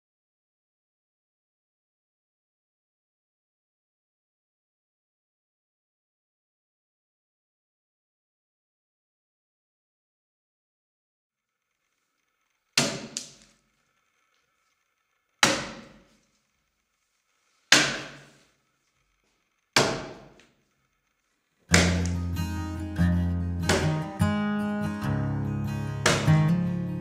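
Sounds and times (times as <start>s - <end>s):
axe chopping log: 12.8s - 13.4s, 15.4s - 16.1s, 17.7s - 18.4s, 19.8s - 20.4s, 21.7s - 22.4s, 23.6s - 24.4s, 26.0s - 26.7s
strummed acoustic guitar: 21.7s - 27.0s.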